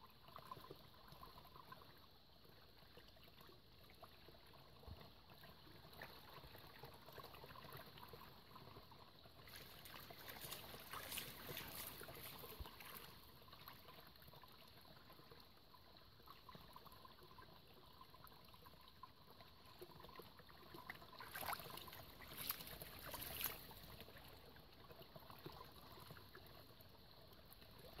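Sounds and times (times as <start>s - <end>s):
stream trickling: 0.0s - 28.0s
dog splashing in water: 9.5s - 12.9s, 21.2s - 23.8s.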